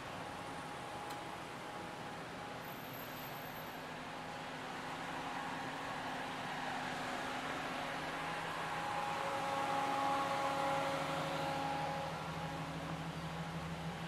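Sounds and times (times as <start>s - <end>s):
street traffic hum: 0.0s - 14.0s
machinery hum: 8.0s - 14.0s.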